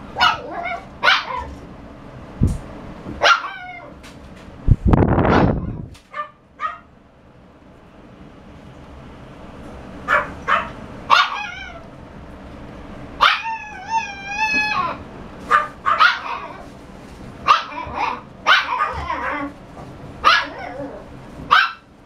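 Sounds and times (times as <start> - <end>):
puppy whining: 0.2 - 1.6, 3.2 - 4.0, 10.1 - 11.8, 13.2 - 16.7, 17.5 - 19.6, 20.2 - 21.7
puppy yapping: 0.2 - 1.6, 3.2 - 4.0, 5.6 - 6.9, 10.0 - 11.8, 13.2 - 16.7, 17.4 - 19.6, 20.2 - 21.9.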